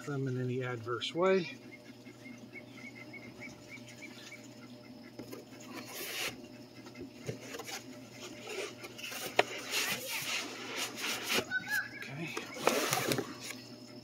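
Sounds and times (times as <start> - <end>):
foam scraping against cardboard: 5.7 - 6.4, 7.3 - 11.6.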